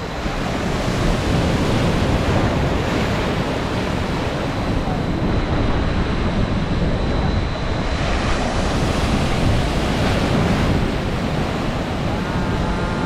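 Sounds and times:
wind buffeting microphone: 0.0 - 13.0
waves breaking: 7.5 - 13.0.

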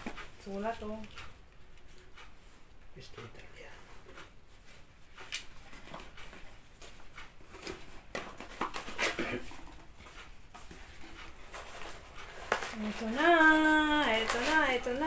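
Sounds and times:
paper and cardboard rustling: 3.9 - 15.0.

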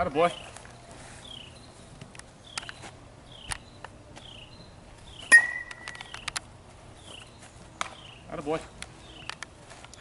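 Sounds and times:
metal bat hitting ball: 5.3 - 6.1.

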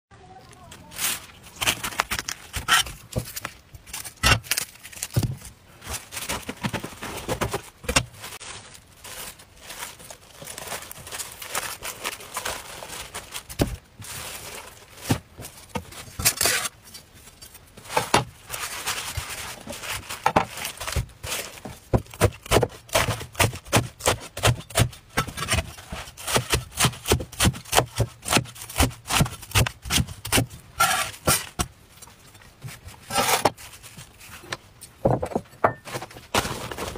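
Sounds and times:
cleaver cutting cabbage: 0.8 - 5.4, 15.1 - 16.8, 19.0 - 31.7, 33.0 - 33.6.

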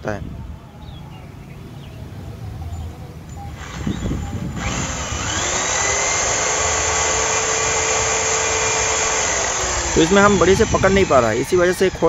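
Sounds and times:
electric drill running: 3.6 - 11.7.

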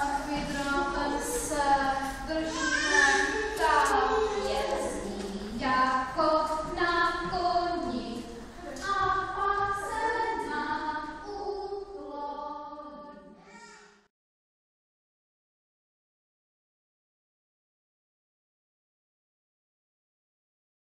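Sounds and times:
children's song voices singing: 0.0 - 14.1.

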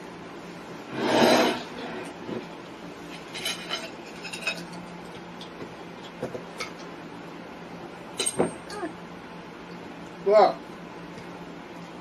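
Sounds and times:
cutlery clinking and scraping on plates: 3.3 - 4.8.

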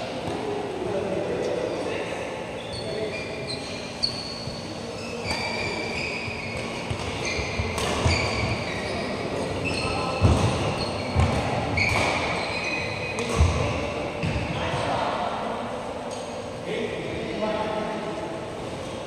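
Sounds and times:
shoes squeaking on court: 2.5 - 14.8
racket striking shuttlecock: 6.7 - 8.2.

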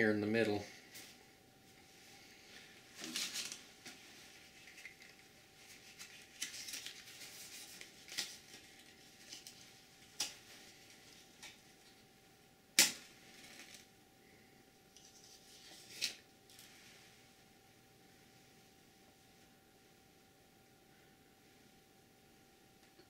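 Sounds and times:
rustling: 2.4 - 11.6.

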